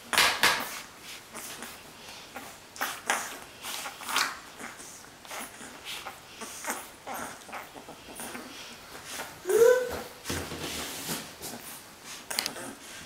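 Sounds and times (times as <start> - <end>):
puppies suckling: 0.8 - 9.4.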